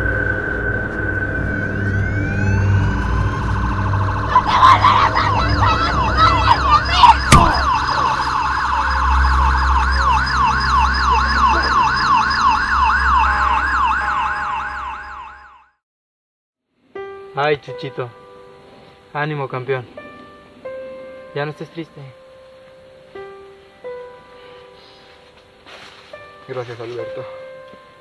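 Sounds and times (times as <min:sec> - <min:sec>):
low rumble: 0:00.0 - 0:12.2
police siren yelping: 0:01.1 - 0:15.7
sharp bang: 0:07.2 - 0:08.2.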